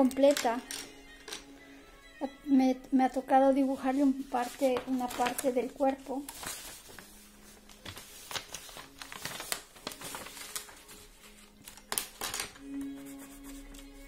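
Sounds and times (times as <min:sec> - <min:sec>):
faint background music: 0:00.0 - 0:14.0
paper rustling on a desk: 0:03.6 - 0:14.0.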